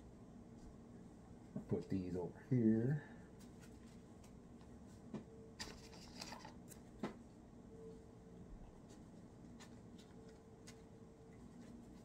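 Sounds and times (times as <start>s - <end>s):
plastic cards clicking and scraping: 5.6s - 6.9s.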